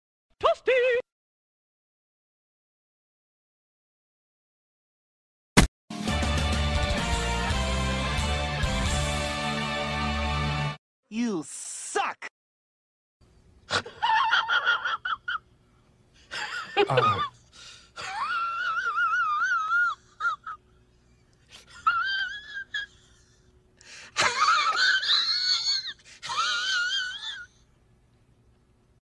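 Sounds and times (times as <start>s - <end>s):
high-pitched laughter: 13.7s - 15.5s, 16.4s - 17.4s, 18.0s - 20.7s, 21.5s - 23.4s, 24.2s - 27.5s.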